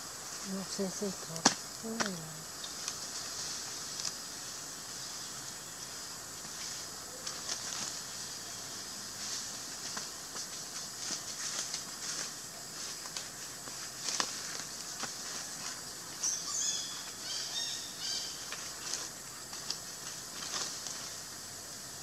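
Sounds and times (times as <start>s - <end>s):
steady hiss of tree canopy: 0.0s - 22.0s
bird chirping: 16.2s - 18.5s.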